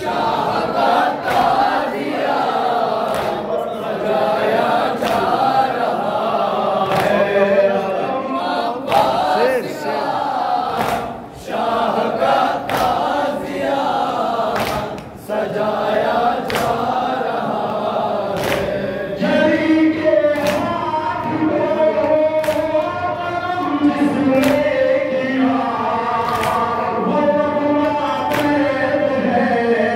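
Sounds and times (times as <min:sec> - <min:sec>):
people chanting in chorus: 0:00.0 - 0:29.9
unison chest-beating slaps: 0:01.2 - 0:01.9, 0:02.9 - 0:03.5, 0:04.9 - 0:05.6, 0:06.8 - 0:07.3, 0:08.9 - 0:09.2, 0:10.7 - 0:11.2, 0:12.6 - 0:13.2, 0:14.4 - 0:15.1, 0:16.4 - 0:17.1, 0:18.3 - 0:18.9, 0:20.3 - 0:20.8, 0:22.3 - 0:22.8, 0:24.3 - 0:24.8, 0:26.2 - 0:26.8, 0:28.2 - 0:28.7.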